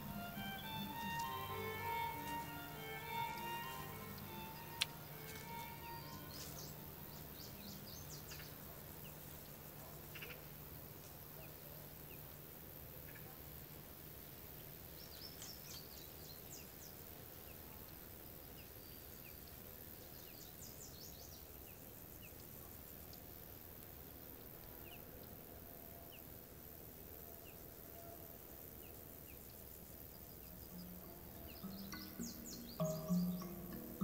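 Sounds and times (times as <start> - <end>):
small birds chirping: 0.0 - 12.4, 14.8 - 23.3, 28.7 - 34.0
low steady hiss: 0.0 - 34.0.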